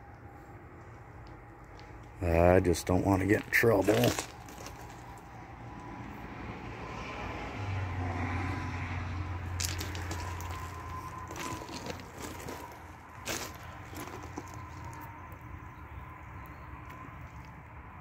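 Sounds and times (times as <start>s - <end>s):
footsteps crunching on ballast: 0.8s - 5.4s, 9.5s - 15.4s.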